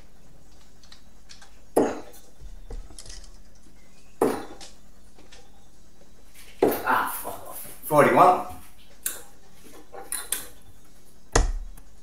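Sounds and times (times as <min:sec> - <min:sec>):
darts striking dartboard: 0:01.8 - 0:02.1, 0:04.2 - 0:04.6, 0:11.4 - 0:11.7.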